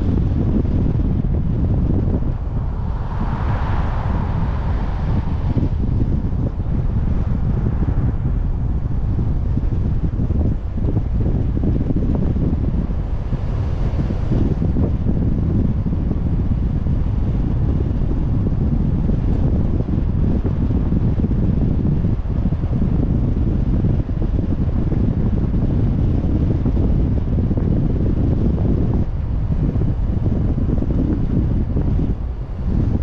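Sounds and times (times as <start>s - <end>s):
car driving rumble: 0.0s - 33.0s
wind buffeting microphone: 0.0s - 33.0s.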